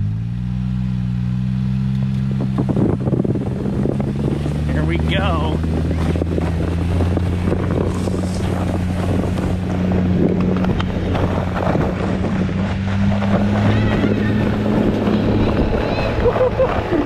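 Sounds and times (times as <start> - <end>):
utility vehicle engine running: 0.0 - 17.0
wind buffeting microphone: 1.9 - 17.0
snow tube sliding over snow: 4.3 - 17.0.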